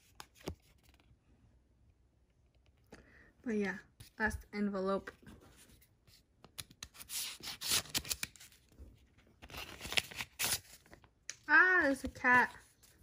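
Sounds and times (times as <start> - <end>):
paper rustling and crinkling: 5.2 - 11.1
paper envelope tearing: 6.9 - 8.6, 9.4 - 11.0.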